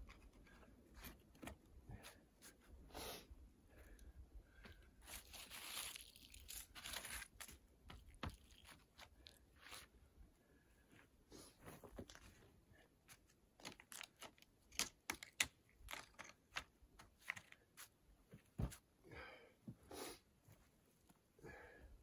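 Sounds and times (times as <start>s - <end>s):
stones clicking and knocking: 13.6s - 17.7s.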